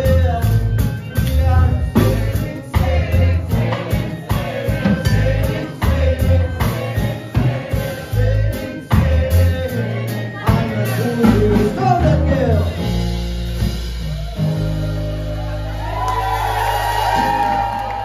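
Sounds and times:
voices singing: 0.0s - 13.2s.

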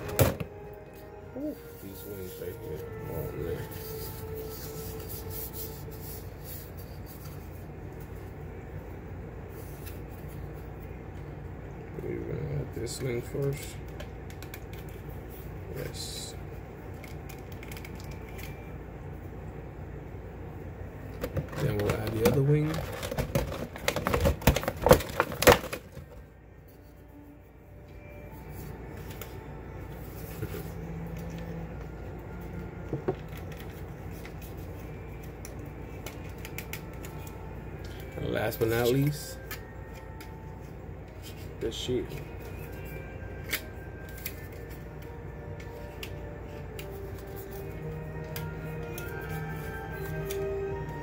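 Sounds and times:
low room hum: 0.0s - 51.0s
plastic rubbing and scraping: 21.2s - 26.0s.

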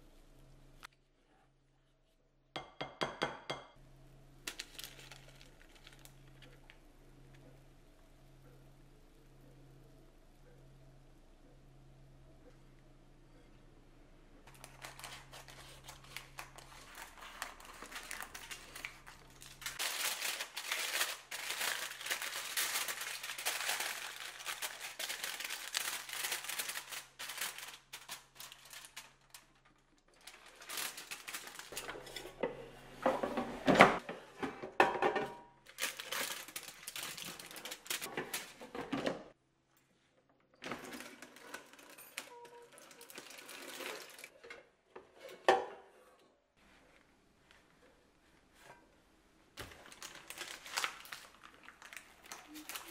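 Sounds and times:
aluminium foil crinkling: 4.4s - 6.8s, 14.4s - 32.2s, 35.7s - 38.6s, 41.2s - 44.3s, 49.6s - 52.9s
parchment paper rustling: 4.4s - 6.8s, 14.4s - 32.4s, 35.7s - 38.7s, 49.6s - 52.9s.

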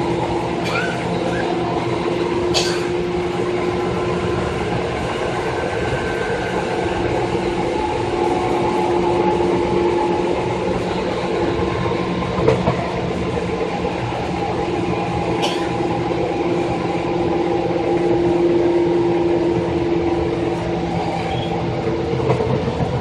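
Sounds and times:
traction motor hum and whine: 0.0s - 23.0s
train wheels rumbling on rail: 0.0s - 23.0s.

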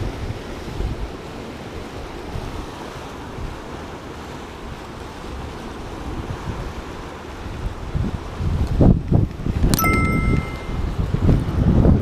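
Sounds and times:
sea waves against rocks: 0.0s - 12.0s
wind buffeting microphone: 5.3s - 12.0s.

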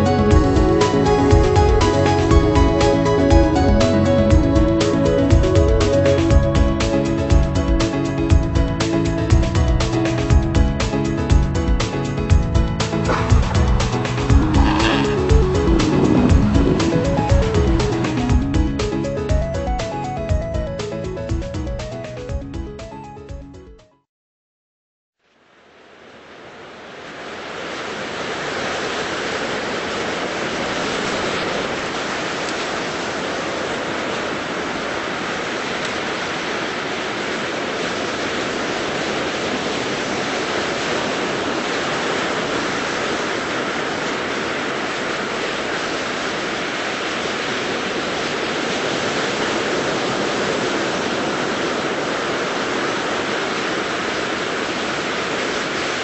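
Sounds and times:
ocean surf washing on beach: 10.0s - 21.0s, 25.6s - 56.0s.

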